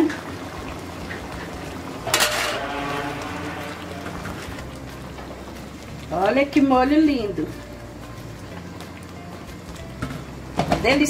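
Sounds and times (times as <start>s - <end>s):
sauce simmering in a pan: 0.0s - 11.0s
spatula scraping a pan: 2.1s - 4.3s.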